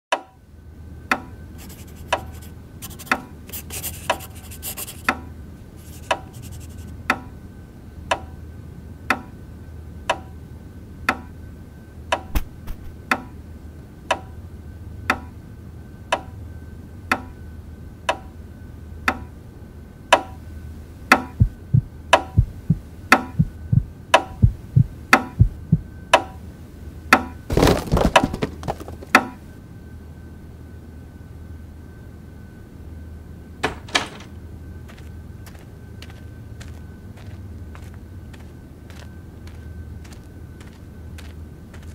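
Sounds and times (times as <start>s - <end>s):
pen scratching on paper: 1.6s - 5.1s, 5.8s - 6.9s
deep thuds: 12.3s - 13.0s, 21.4s - 25.9s
scraping or rustling: 27.5s - 29.2s.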